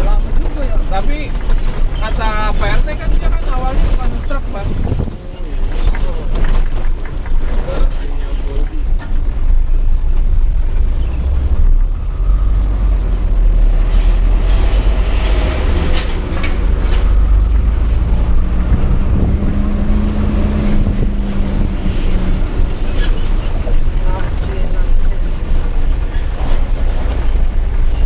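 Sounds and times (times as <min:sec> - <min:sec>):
truck diesel engine rumbling: 0:00.0 - 0:28.0
humming drone: 0:11.0 - 0:24.0.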